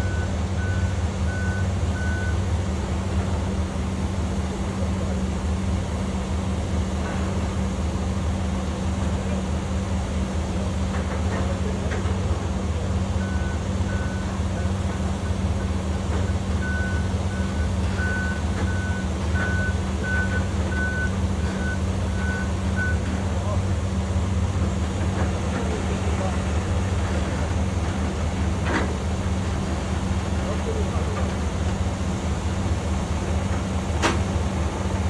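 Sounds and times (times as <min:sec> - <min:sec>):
reverse alarm beeping: 0:00.0 - 0:02.4, 0:13.2 - 0:15.4, 0:16.3 - 0:23.1
truck engine idling: 0:00.0 - 0:35.0.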